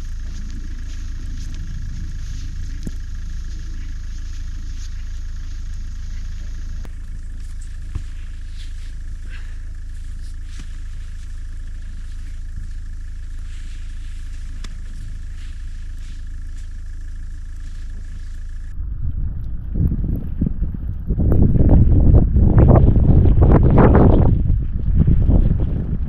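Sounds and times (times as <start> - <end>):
car engine low rumble: 0.0 - 26.0
faint constant whine: 0.0 - 26.0.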